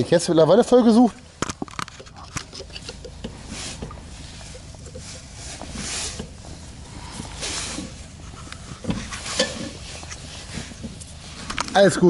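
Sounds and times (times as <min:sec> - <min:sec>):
soft hissing swells: 0:03.2 - 0:11.6.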